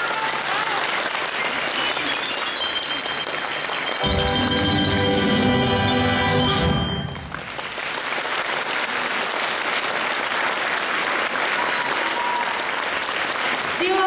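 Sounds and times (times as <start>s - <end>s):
audience applause: 0.0s - 14.0s
xylophone and wind band chord: 2.2s - 7.2s.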